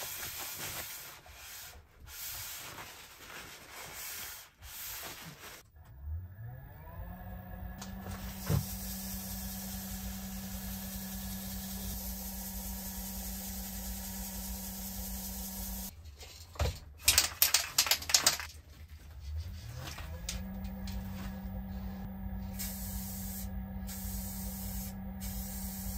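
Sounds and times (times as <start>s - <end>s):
wood lathe motor humming: 6.3s - 15.9s, 19.9s - 25.8s.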